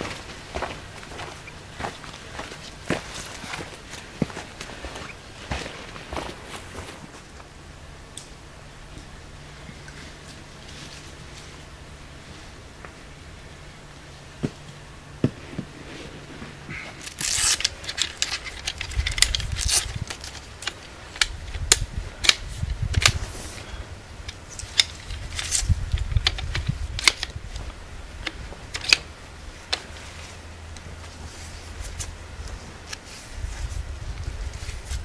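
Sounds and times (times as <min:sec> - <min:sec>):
tripod leg locks clicking: 0:17.1 - 0:23.2, 0:24.3 - 0:27.4.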